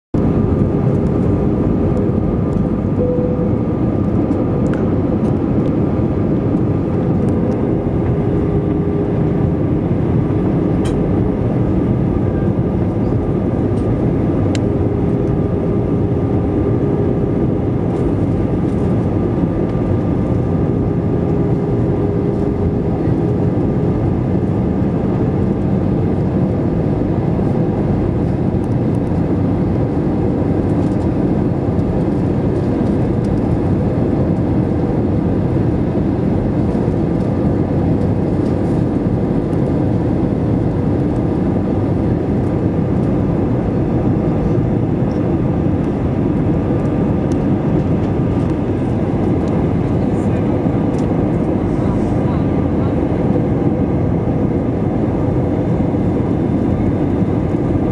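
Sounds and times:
jet engine rumble: 0:00.1 - 0:57.9
faint hum: 0:00.2 - 0:25.8
airflow: 0:44.3 - 0:53.6.

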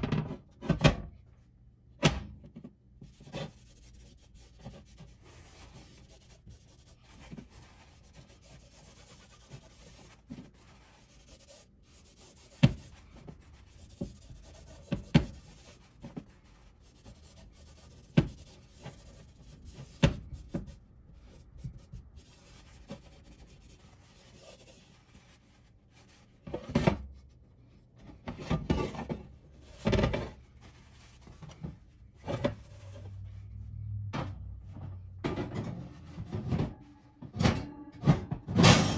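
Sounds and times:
paper towel rubbing iron griddle: 0:03.1 - 0:26.2.

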